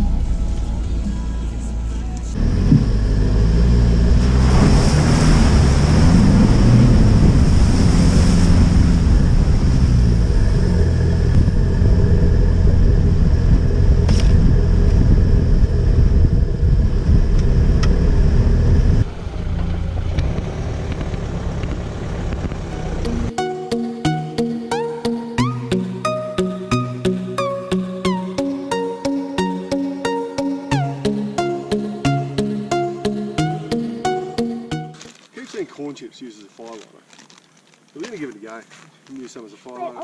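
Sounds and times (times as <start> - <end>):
diesel engine driving: 0.0 - 35.1
tyres rumbling on rough track: 2.2 - 23.3.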